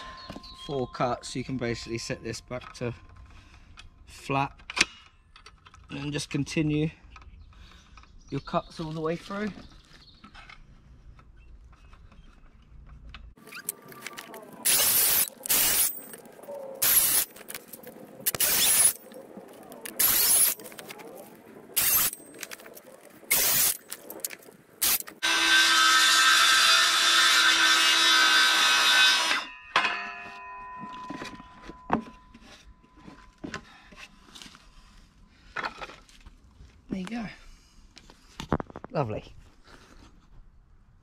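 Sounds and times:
circular saw cutting wood: 13.4s - 17.6s, 18.3s - 19.1s, 19.8s - 20.8s, 21.8s - 22.2s, 23.3s - 23.8s, 24.8s - 29.5s.

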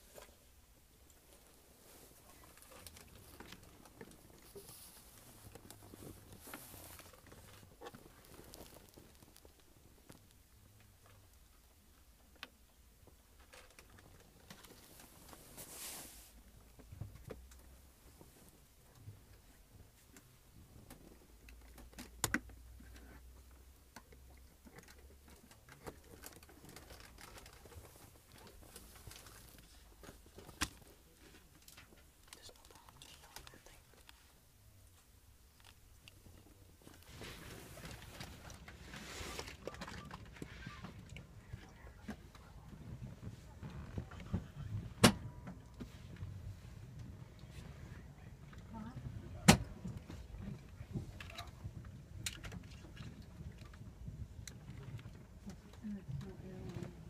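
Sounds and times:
faint low hum: 0.0s - 57.0s
light clicks and creaks: 1.0s - 15.7s, 16.5s - 57.0s
small clicks and ticks: 2.4s - 15.1s, 20.1s - 34.3s.

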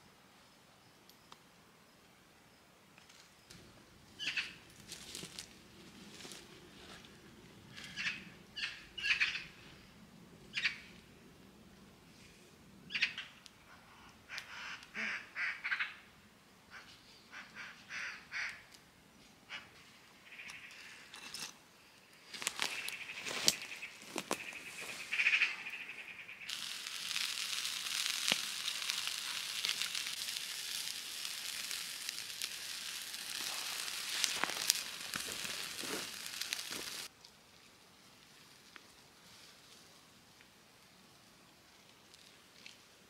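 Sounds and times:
chicken sizzling over embers: 26.5s - 40.4s.

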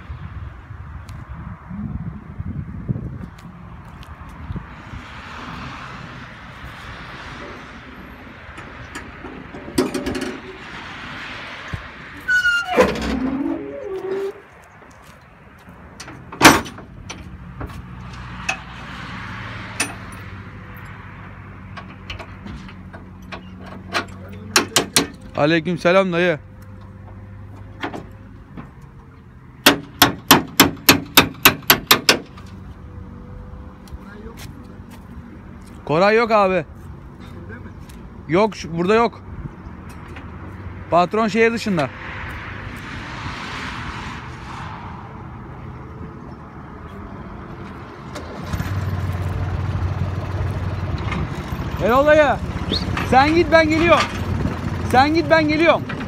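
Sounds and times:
hinges squealing: 7.4s - 14.9s, 21.6s - 32.7s, 48.0s - 56.0s
metal latch clanging: 8.5s - 10.6s, 16.0s - 17.2s
metal tailgate clanking and rattling: 8.5s - 10.8s, 12.2s - 14.4s, 16.0s - 17.7s, 21.8s - 25.4s.

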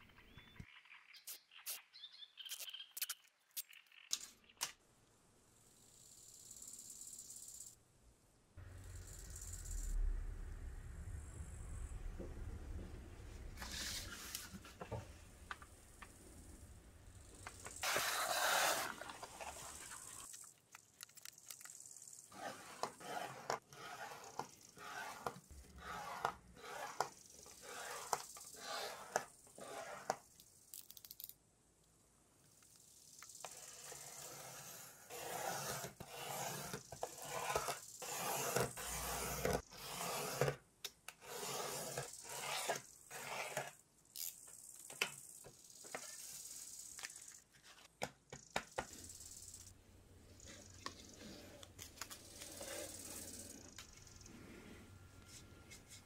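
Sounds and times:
sandpaper scraping and rustling: 13.6s - 14.8s, 17.7s - 20.4s, 22.2s - 30.2s, 33.5s - 40.6s, 41.2s - 43.8s, 45.8s - 47.9s.

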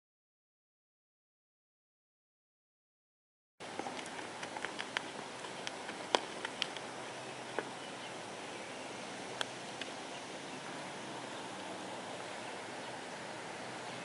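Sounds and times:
steady outdoor hiss: 3.6s - 14.0s
sharp ticks and clicks: 3.8s - 6.9s.

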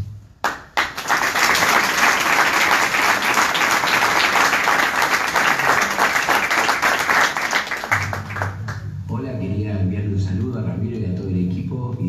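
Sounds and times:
crowd applauding: 0.4s - 8.9s.

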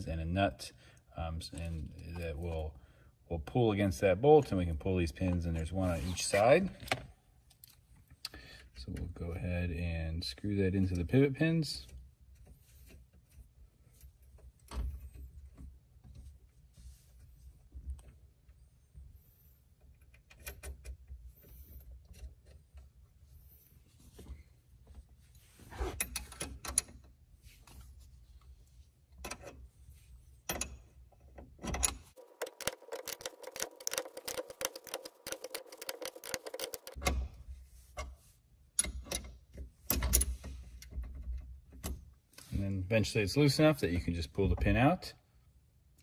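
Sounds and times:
small metal clicks and scrapes: 31.7s - 37.1s
rapid clicking: 32.2s - 37.0s.

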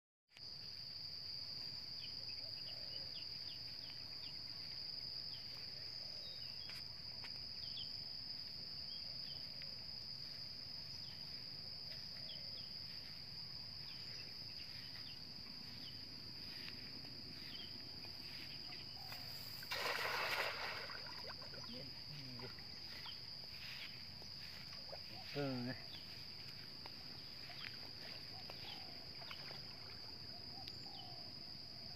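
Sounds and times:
high-pitched insect drone: 11.9s - 31.0s.

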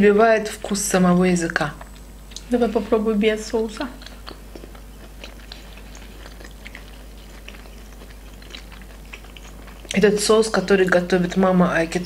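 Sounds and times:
chewing mouth sounds: 3.8s - 11.5s.

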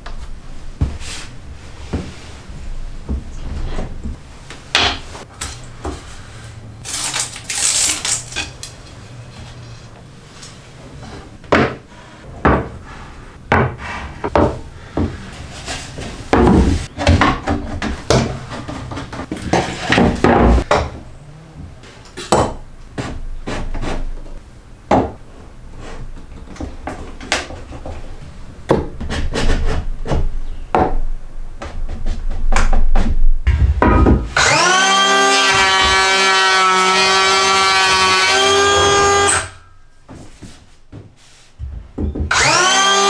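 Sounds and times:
wooden knocks and scrapes: 0.8s - 6.1s, 11.0s - 21.0s, 25.8s - 30.9s, 31.6s - 34.4s.

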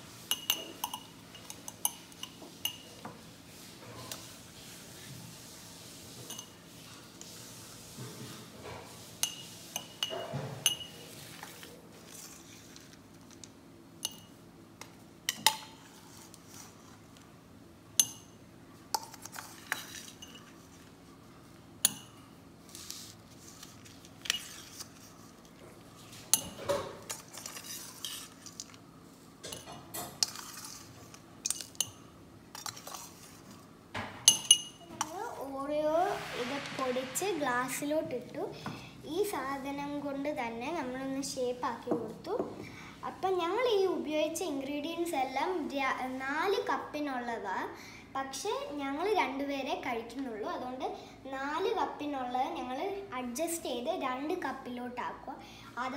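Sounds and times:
metal spoon clinking on bowl: 0.3s - 2.9s, 34.2s - 35.1s.

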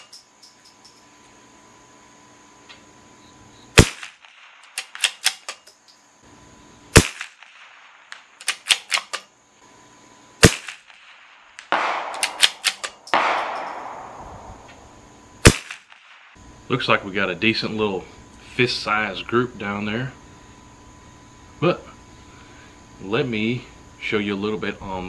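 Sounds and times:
rifle shots: 3.8s - 5.5s, 6.9s - 9.2s, 10.4s - 14.7s, 15.4s - 16.4s
rifle bolt clicks: 4.6s - 5.8s, 11.6s - 13.9s.

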